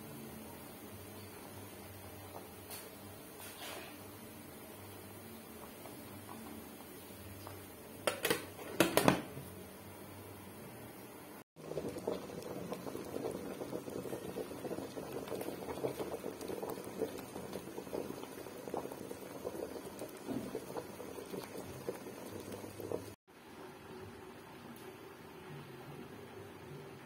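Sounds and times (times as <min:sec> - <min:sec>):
water boiling and bubbling: 0:00.6 - 0:03.3, 0:04.4 - 0:08.8, 0:11.6 - 0:23.6.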